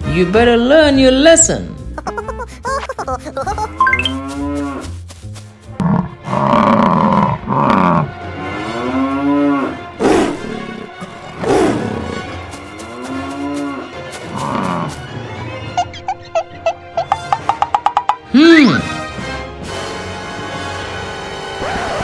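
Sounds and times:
cow mooing: 0:05.8 - 0:09.9.

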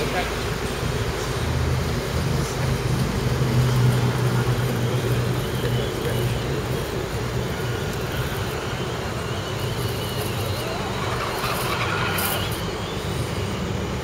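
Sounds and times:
road traffic rumble: 0:00.0 - 0:14.0
faint electric motor whine: 0:03.1 - 0:14.0.

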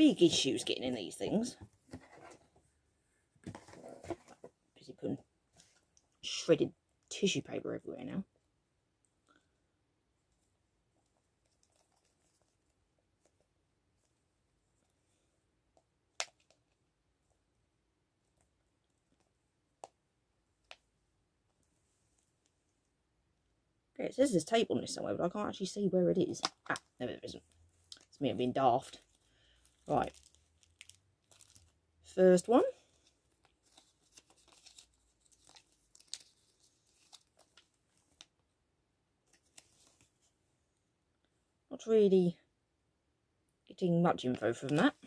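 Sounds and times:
paper crinkling: 0:28.9 - 0:31.8, 0:32.9 - 0:38.3.

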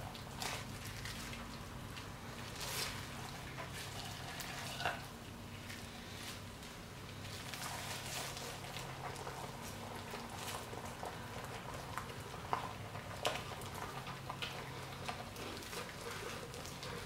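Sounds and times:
plastic gloves crinkling: 0:00.2 - 0:10.7.

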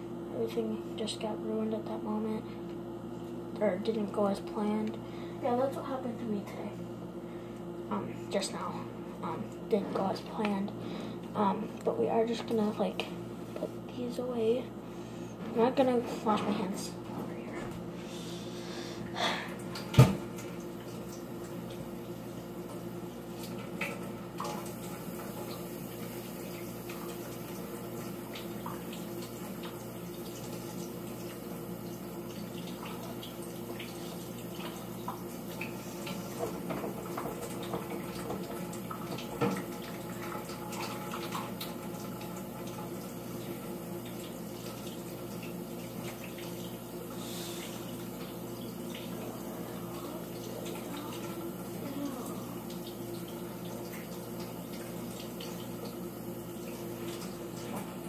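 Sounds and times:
tap water running into sink: 0:22.6 - 0:58.0.

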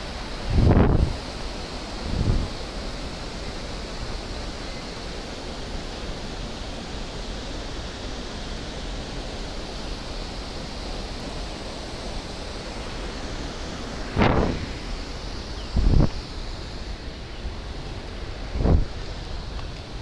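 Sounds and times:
waterfall rushing: 0:00.0 - 0:20.0.

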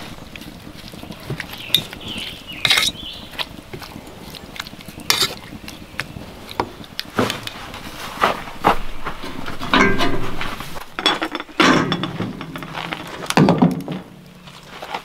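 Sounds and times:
metal fork scraping copper saucepan: 0:01.7 - 0:03.0, 0:05.1 - 0:05.4.

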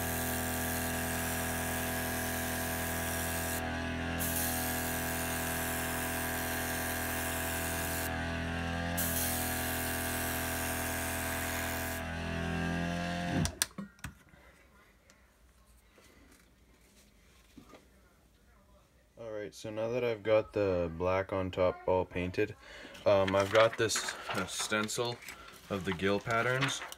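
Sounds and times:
small compressor humming: 0:00.0 - 0:13.6
airbrush spraying hiss: 0:04.2 - 0:05.8, 0:09.0 - 0:10.1.

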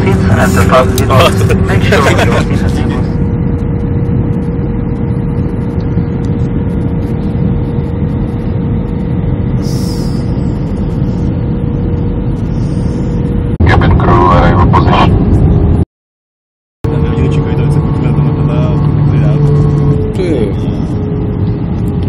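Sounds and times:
voice: 0:00.0 - 0:03.1, 0:13.6 - 0:15.2, 0:16.9 - 0:19.5, 0:20.2 - 0:20.7
jet engine and airflow drone: 0:00.0 - 0:15.8, 0:16.8 - 0:22.0
thin steady hum: 0:03.8 - 0:13.9.

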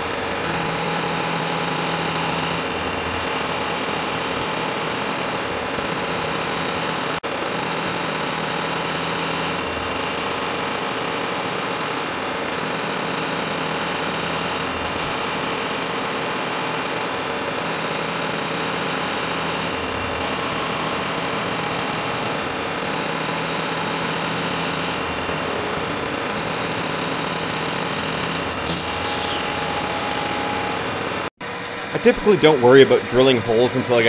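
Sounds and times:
high cutter whine: 0:00.0 - 0:32.0
milling machine cutting metal: 0:23.6 - 0:31.3.

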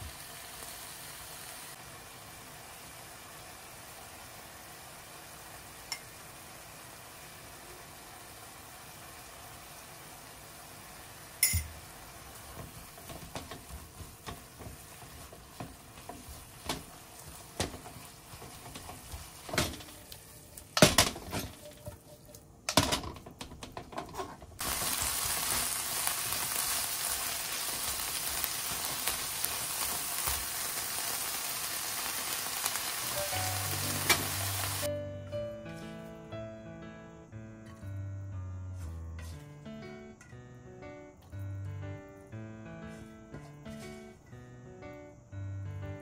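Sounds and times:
meat sizzling in frying pan: 0:00.0 - 0:21.5, 0:24.6 - 0:34.9
spatula scraping frying pan: 0:38.8 - 0:39.5, 0:42.9 - 0:44.2.

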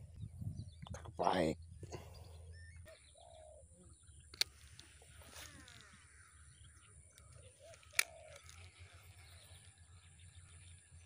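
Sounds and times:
faint outdoor background: 0:00.0 - 0:11.0
sharp clicks: 0:07.1 - 0:08.6.

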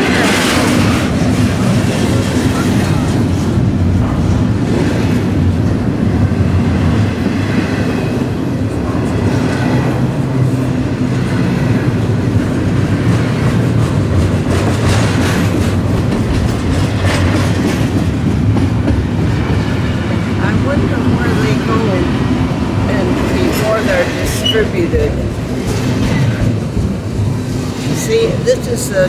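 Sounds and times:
freight train rumbling past: 0:00.0 - 0:29.0
train wheel clicks and clatter: 0:11.0 - 0:19.8, 0:23.0 - 0:28.2.

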